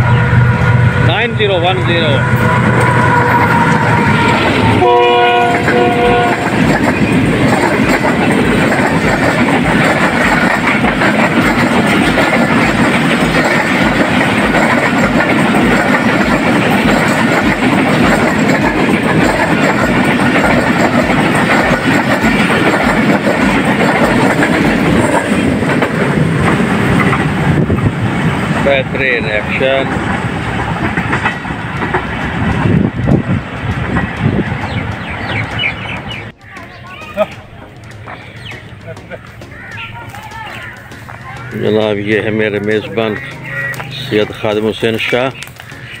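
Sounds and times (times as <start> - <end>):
train wheels clattering on rails: 1.2 - 46.0
train horn: 2.0 - 6.7.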